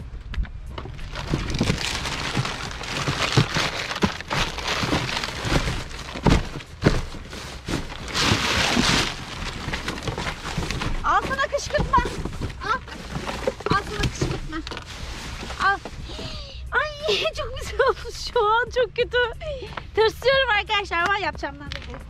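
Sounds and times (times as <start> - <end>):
boxes and bags rustling: 0.4 - 17.9.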